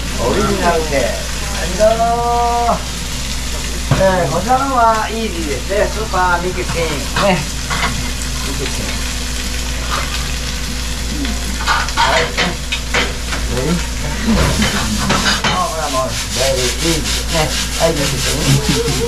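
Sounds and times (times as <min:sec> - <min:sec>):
food sizzling in a frying pan: 0:00.0 - 0:19.0
utensils scraping a pan: 0:14.2 - 0:19.0.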